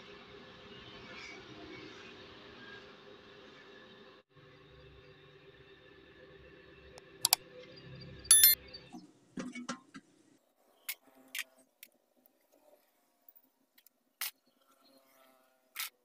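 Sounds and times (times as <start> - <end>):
bright bell ding: 8.3 - 8.6
mouse click: 8.3 - 8.6.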